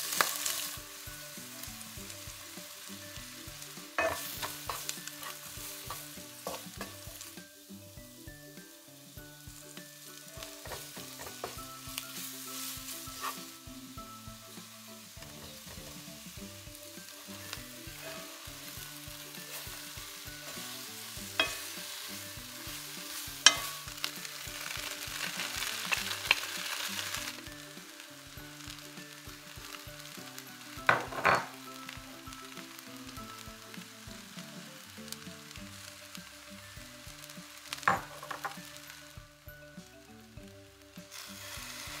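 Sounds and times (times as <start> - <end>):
vegetables sizzling in frying pan: 0.0 - 42.0
wooden spoon scraping pan: 13.1 - 13.5.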